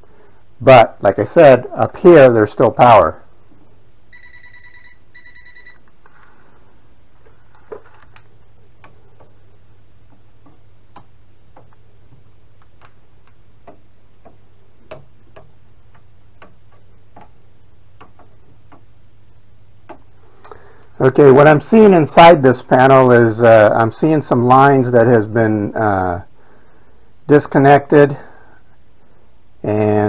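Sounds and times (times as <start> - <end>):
low steady hum: 0.0 - 30.0
voltage tester high beep: 4.1 - 5.9.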